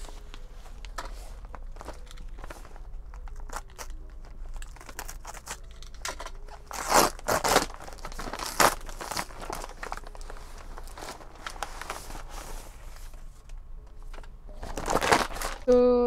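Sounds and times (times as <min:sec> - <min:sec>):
paper crinkling and crackling: 0:00.0 - 0:16.0
paper ripping: 0:06.6 - 0:12.6, 0:14.6 - 0:15.7.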